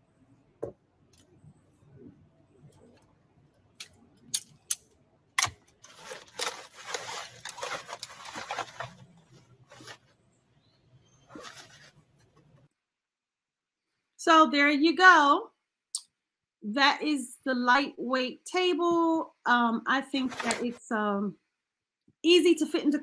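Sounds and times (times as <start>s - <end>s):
nylon bag rustling: 5.8s - 10.1s, 11.3s - 12.0s, 20.2s - 20.8s.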